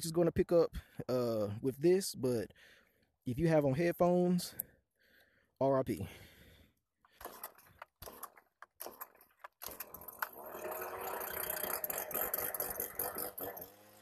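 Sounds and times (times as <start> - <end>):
pull-start cranking: 7.1 - 14.0
leaf blower engine running: 7.2 - 14.0.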